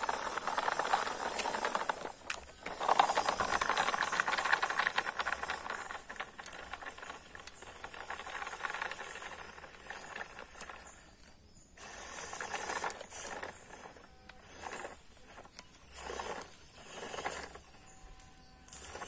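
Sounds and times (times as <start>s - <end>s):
model truck wheels rattling: 0.0s - 19.0s.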